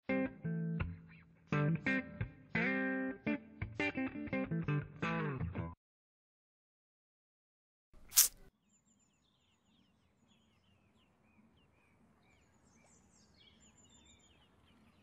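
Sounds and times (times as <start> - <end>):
outdoor background noise: 8.0 - 15.0
faint birds chirping: 8.6 - 15.0.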